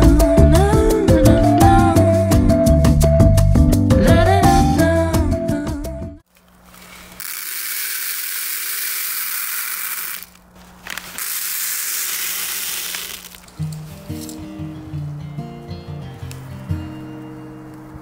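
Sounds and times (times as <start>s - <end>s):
beads pouring with rattling hiss: 6.7s - 13.5s.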